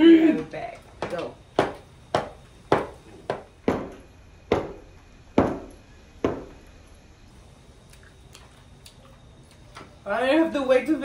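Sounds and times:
sharp knocks: 0:01.0 - 0:04.8, 0:05.4 - 0:06.6.

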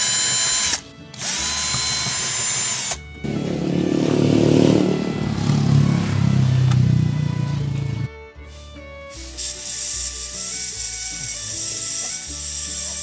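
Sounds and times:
cordless drill whining: 0:00.0 - 0:03.6, 0:09.9 - 0:13.0
background music: 0:00.0 - 0:13.0.

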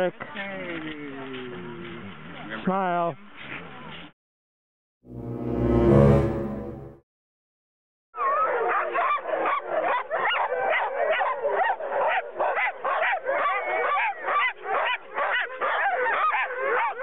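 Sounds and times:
dogs barking and yelping: 0:08.2 - 0:17.0.

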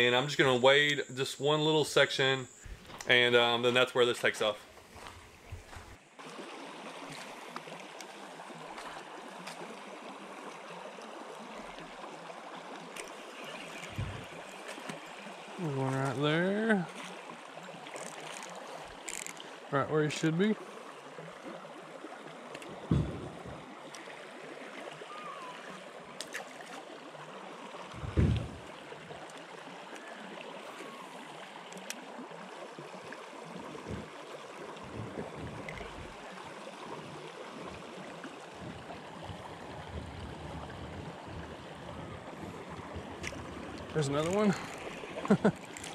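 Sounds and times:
water running over rocks: 0:02.0 - 0:45.9
low thumps: 0:02.6 - 0:03.0, 0:13.9 - 0:14.3, 0:22.9 - 0:23.7, 0:27.9 - 0:28.7, 0:34.8 - 0:36.2.

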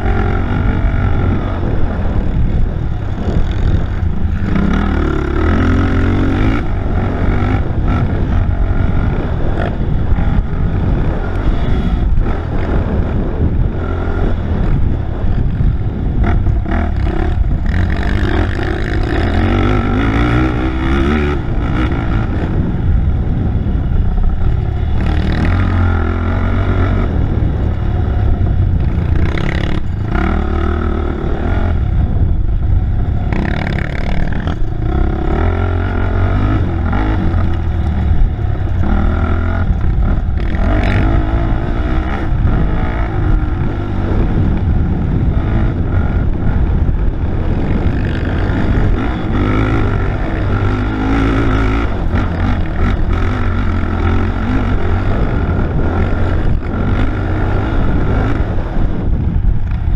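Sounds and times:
atv engine revving: 0:00.0 - 0:59.9
knocks and clatter on dirt track: 0:33.2 - 0:59.9.

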